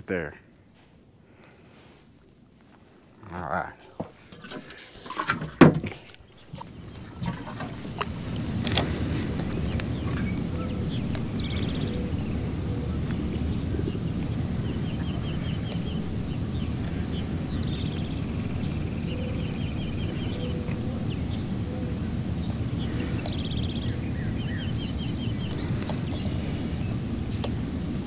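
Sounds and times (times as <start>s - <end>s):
bird calling: 3.2s - 28.0s
low rushing background: 6.3s - 28.0s.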